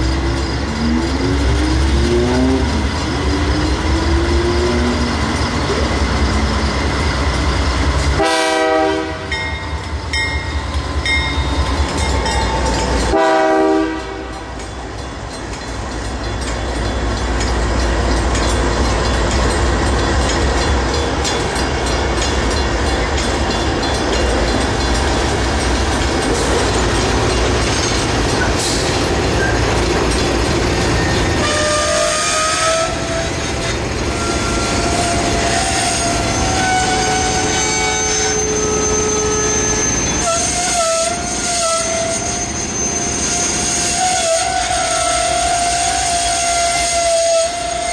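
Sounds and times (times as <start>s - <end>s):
diesel train passing: 0.0s - 47.9s
locomotive horn blasts: 8.2s - 9.4s, 13.1s - 14.5s, 31.4s - 33.2s, 34.2s - 42.4s, 43.9s - 47.9s
wheel squeal: 30.8s - 45.0s.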